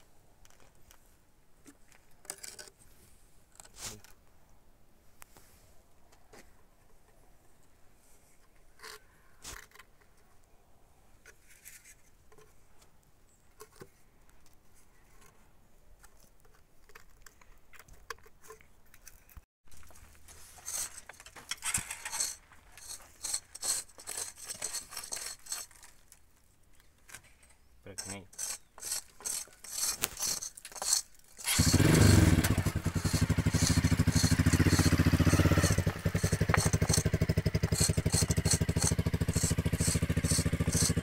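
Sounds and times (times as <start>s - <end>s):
tool rasping on concrete block: 20.5s - 25.9s, 28.0s - 41.0s.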